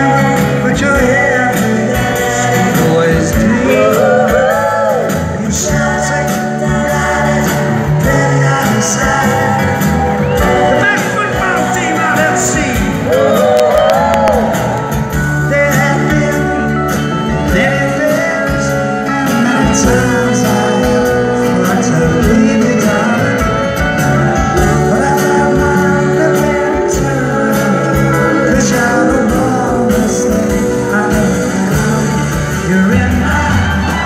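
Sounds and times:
live band with singing: 0:00.0 - 0:34.0.

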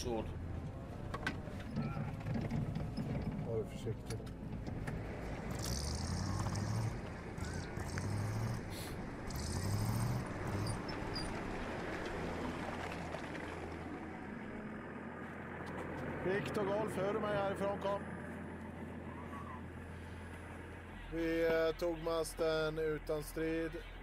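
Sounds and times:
heavy vehicle engine revving: 0:04.3 - 0:16.2.

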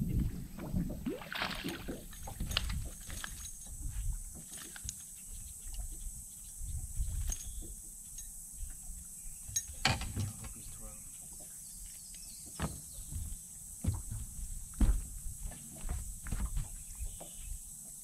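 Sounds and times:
fish splashing at the surface: 0:01.0 - 0:03.3.

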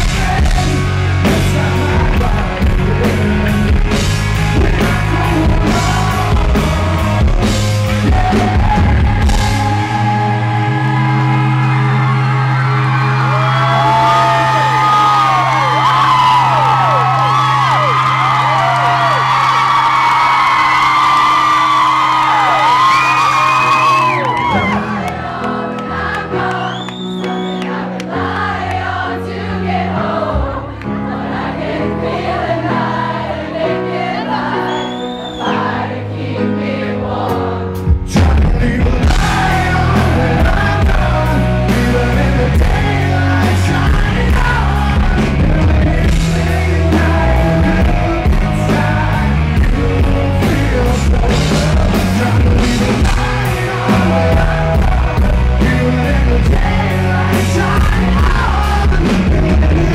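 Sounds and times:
man singing: 0:00.0 - 0:10.7, 0:38.0 - 0:59.9
live rock band playing: 0:00.0 - 0:35.9, 0:37.1 - 0:59.9
electric guitar: 0:38.2 - 0:59.9.

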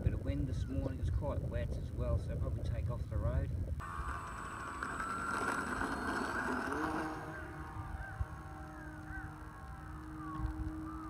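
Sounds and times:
wind rumbling on microphone: 0:00.0 - 0:11.0
electric motor and propeller whining: 0:03.8 - 0:11.0.

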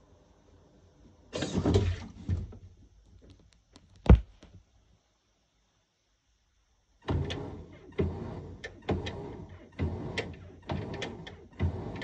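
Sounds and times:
sharp thunk: 0:04.1 - 0:04.3.

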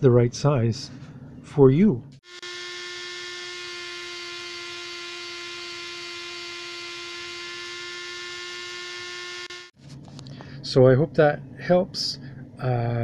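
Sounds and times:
rotary tool motor humming: 0:02.2 - 0:09.8.

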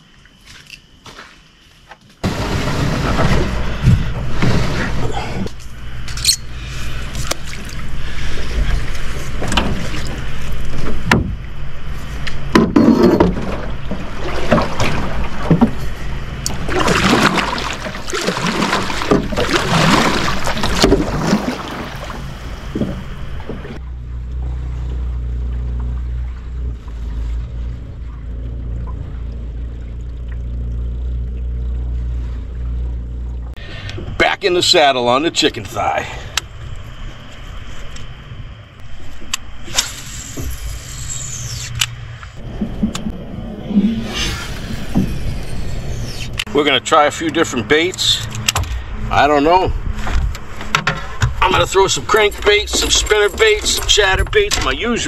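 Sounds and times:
plants scraping boat hull: 0:02.2 - 0:05.6, 0:12.1 - 0:23.8
steady low hum: 0:02.2 - 0:55.0
water sloshing: 0:02.3 - 0:39.7, 0:41.9 - 0:46.5, 0:49.8 - 0:55.0.

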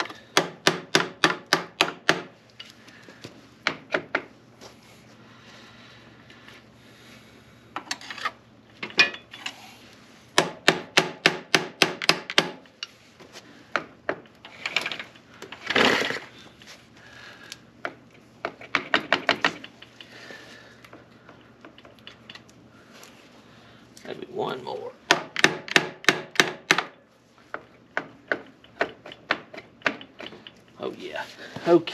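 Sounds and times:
sharp metallic clicks of hand tools: 0:25.1 - 0:27.0, 0:28.0 - 0:30.8.

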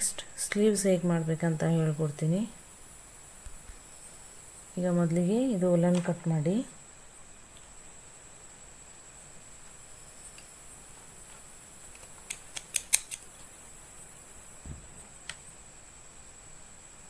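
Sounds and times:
soft knock: 0:14.6 - 0:15.0.

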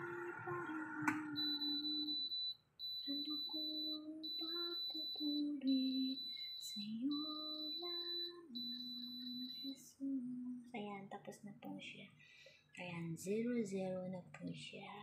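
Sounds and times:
oven timer beeping: 0:01.4 - 0:09.8.

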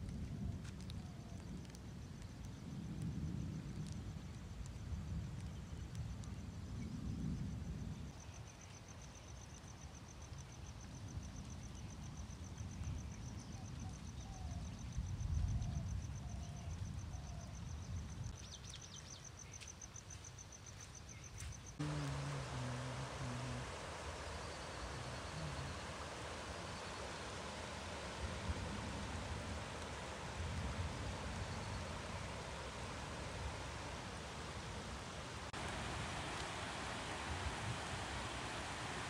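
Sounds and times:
wind rumble on microphone: 0:00.0 - 0:09.3, 0:10.6 - 0:19.2, 0:21.3 - 0:39.0
insect trilling: 0:21.8 - 0:27.9
rushing noise with low hum: 0:21.8 - 0:39.0.

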